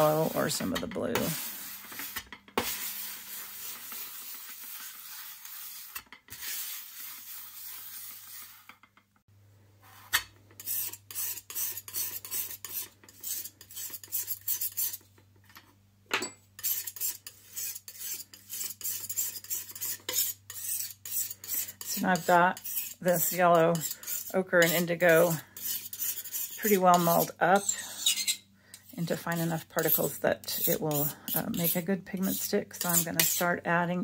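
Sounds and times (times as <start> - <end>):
palette knife scraping glass: 10.1 - 15.1, 16.6 - 33.5
glass muller grinding paste: 16.6 - 33.5.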